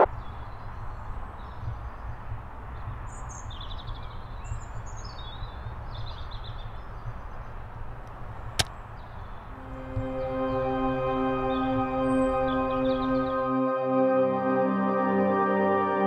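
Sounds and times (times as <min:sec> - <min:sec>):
small birds chirping: 0:00.0 - 0:13.4
steady low rumble: 0:09.4 - 0:13.4.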